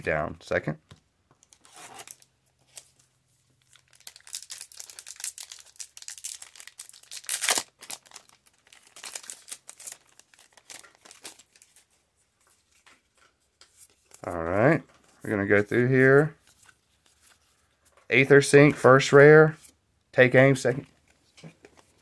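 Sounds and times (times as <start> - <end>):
foil wrapper tearing and crinkling: 3.6 - 11.8.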